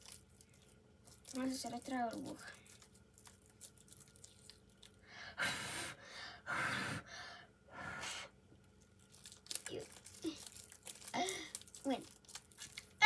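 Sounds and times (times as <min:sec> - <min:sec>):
child blowing breathy puffs: 0:05.1 - 0:08.4.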